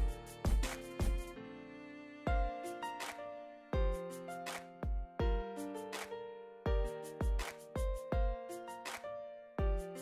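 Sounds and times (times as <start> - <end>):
deep drum thumps: 0.0 - 1.3, 4.8 - 5.4, 6.7 - 8.4, 9.6 - 9.8
instrumental music with beat: 0.0 - 1.4, 2.1 - 10.0.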